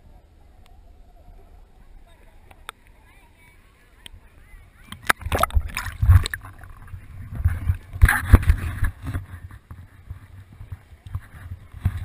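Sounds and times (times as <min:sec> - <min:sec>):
water lapping: 0:02.0 - 0:12.0
water splashing and sloshing: 0:04.8 - 0:12.0.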